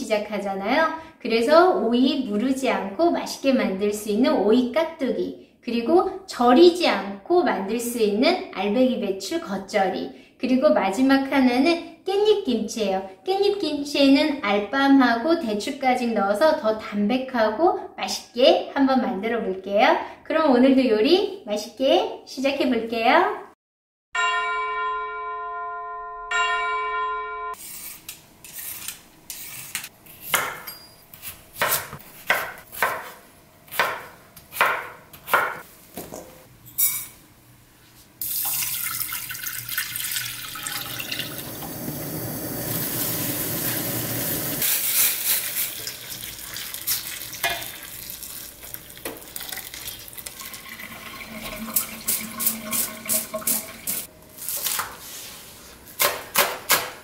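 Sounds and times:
chime ringing: 24.2s - 27.6s
knife cutting on board: 27.8s - 36.2s
tap water pouring into saucepan: 38.2s - 44.4s, 45.2s - 54.1s.

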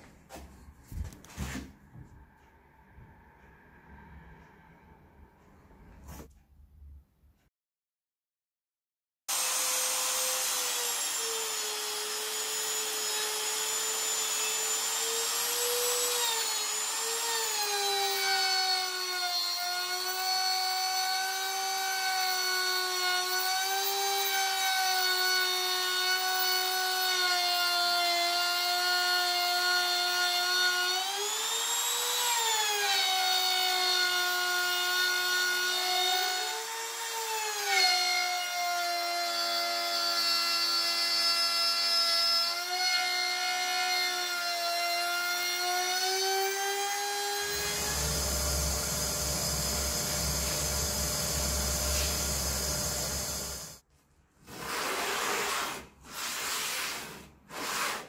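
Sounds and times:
router whining cutting plywood: 9.3s - 53.8s.

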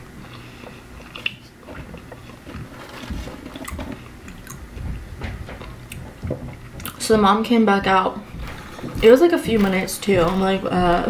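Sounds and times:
person chewing food: 0.0s - 7.0s, 8.2s - 11.0s
biting into fry: 0.3s - 7.0s.

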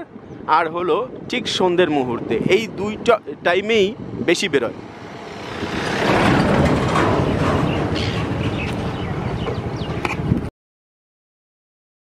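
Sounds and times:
pickup truck passing by: 4.8s - 9.1s.

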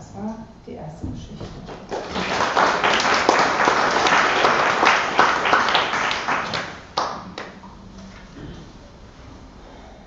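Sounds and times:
audience clapping: 1.5s - 7.7s.

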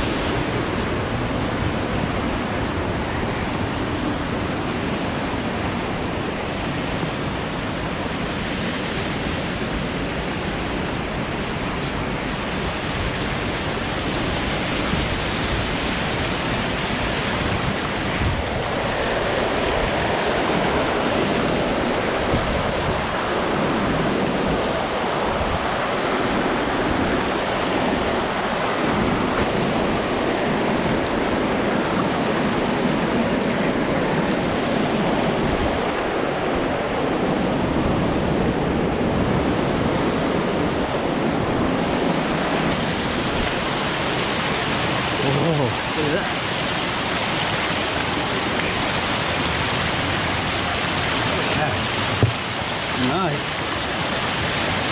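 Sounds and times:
waterfall rushing: 0.0s - 54.9s.

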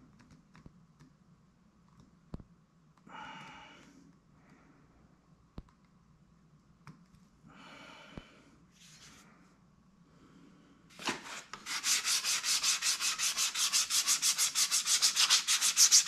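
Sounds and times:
man breathing out heavily: 7.5s - 8.6s.

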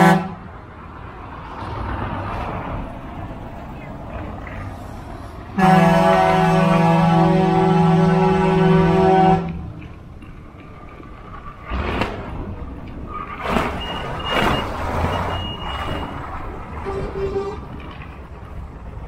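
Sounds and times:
truck engines rumbling past: 0.0s - 19.0s.

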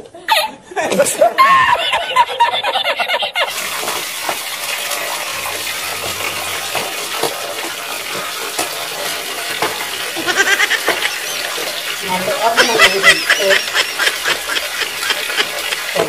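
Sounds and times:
water splashing on concrete: 3.4s - 16.0s
small knocks: 6.0s - 10.0s.

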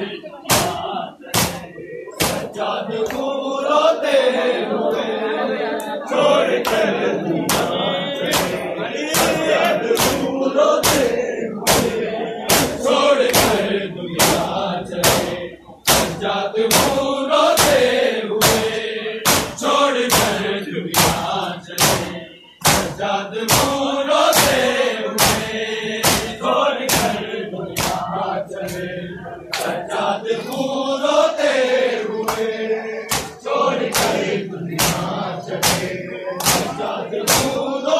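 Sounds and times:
crowd of men chanting: 0.0s - 37.9s
hands slapping on chests: 0.5s - 3.3s, 6.6s - 6.9s, 7.5s - 11.1s, 11.7s - 13.6s, 18.4s - 20.4s, 21.0s - 24.6s, 25.2s - 27.2s, 27.8s - 28.8s, 29.5s - 29.8s, 32.2s - 32.5s, 33.1s - 37.6s.

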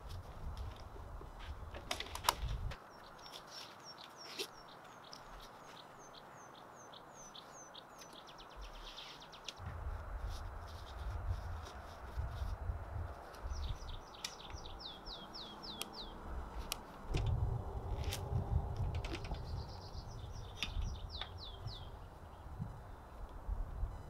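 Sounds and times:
songbird singing: 0.7s - 24.0s
low rumble: 9.6s - 13.8s.

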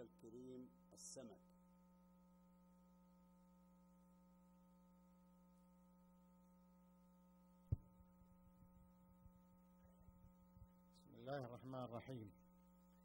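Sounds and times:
electrical hum: 0.0s - 13.0s
sharp thump: 7.7s - 7.9s.

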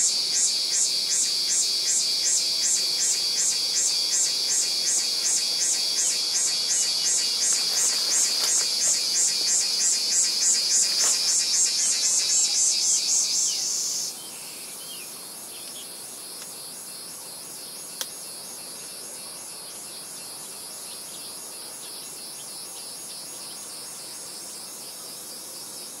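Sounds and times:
steady high hiss: 0.0s - 18.6s
insects chirping: 0.0s - 26.0s.

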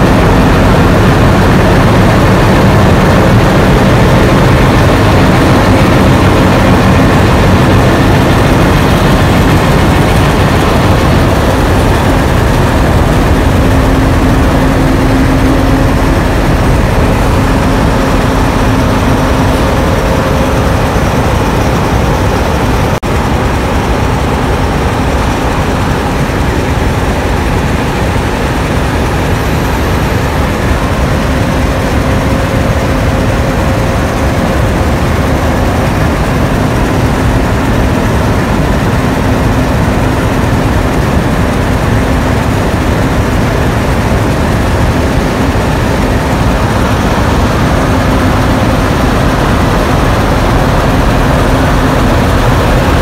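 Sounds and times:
locomotive diesel engine idling: 0.0s - 53.0s.

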